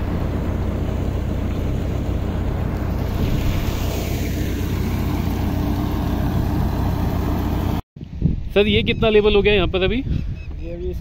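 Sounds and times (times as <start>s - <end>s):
wind buffeting microphone: 8.0s - 11.0s.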